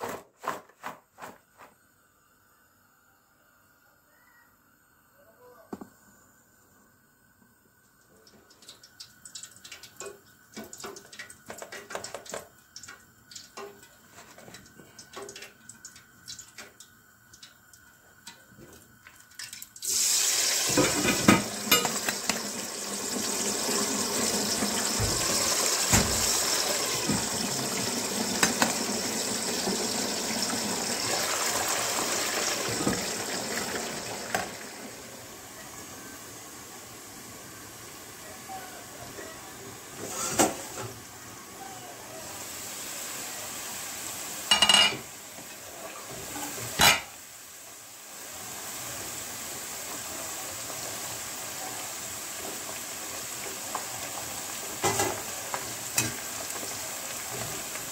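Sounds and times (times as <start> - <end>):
tap running into a sink: 20.6 - 22.5, 24.4 - 28.9, 32.6 - 34.6.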